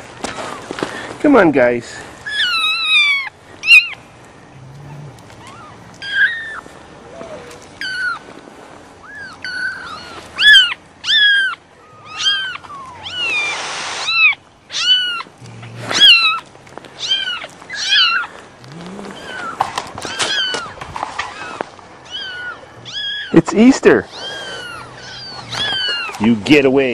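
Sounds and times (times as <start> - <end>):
kittens mewing: 2.2 - 8.3, 9.0 - 26.9.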